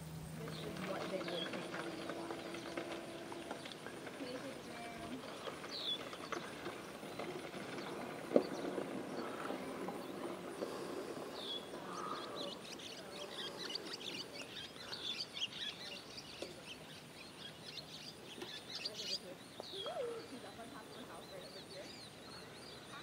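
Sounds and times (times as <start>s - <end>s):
birds chirping: 0.0s - 23.0s
outdoor ambience: 0.0s - 23.0s.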